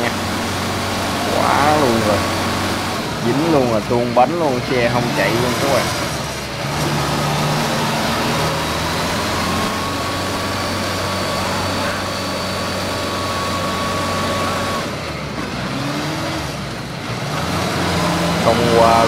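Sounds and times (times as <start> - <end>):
thin steady whine: 0.0 - 17.0
diesel engine running hard: 0.0 - 19.0.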